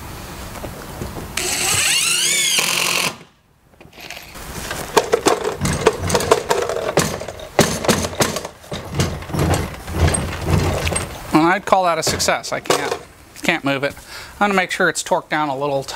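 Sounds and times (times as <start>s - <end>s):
cordless drill driving screw: 1.4s - 3.3s
knocks and clatter of tools: 3.8s - 11.4s, 12.0s - 13.1s.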